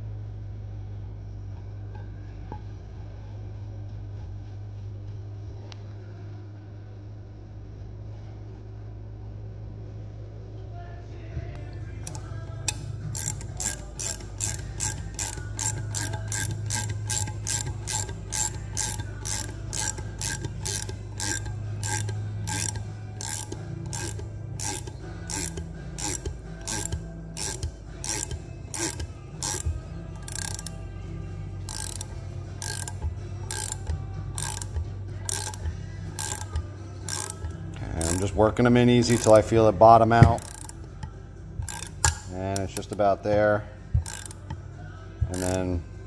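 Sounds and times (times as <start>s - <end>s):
steady low hum: 0.0s - 46.0s
socket ratchet clicking: 11.6s - 39.5s, 40.1s - 43.0s, 43.9s - 45.8s.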